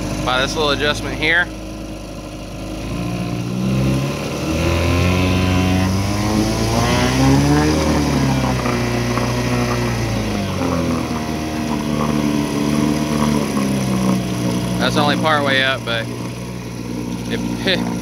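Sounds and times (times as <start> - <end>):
outboard engine revving: 0.0 - 18.0
propeller churning water: 0.0 - 18.0.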